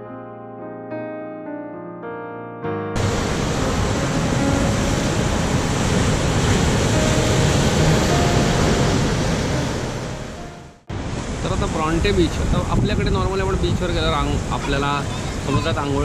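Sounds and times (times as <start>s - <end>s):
piano music: 0.0s - 10.9s
surf breaking over rocks: 3.0s - 10.3s, 10.9s - 16.0s.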